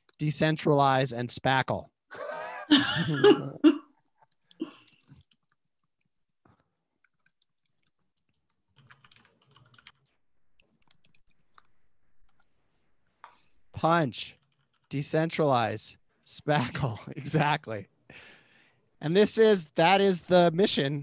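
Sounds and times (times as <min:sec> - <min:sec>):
computer keyboard typing: 0:04.2 - 0:12.4, 0:14.4 - 0:15.0.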